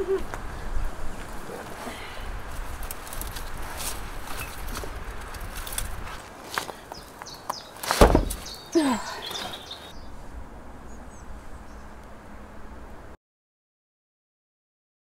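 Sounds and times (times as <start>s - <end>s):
heavy thump: 7.9s - 8.5s.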